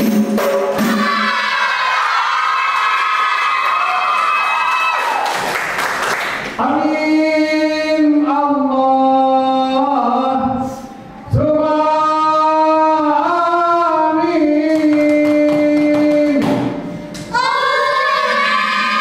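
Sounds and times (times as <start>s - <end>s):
group chanting in unison: 17.3s - 19.0s.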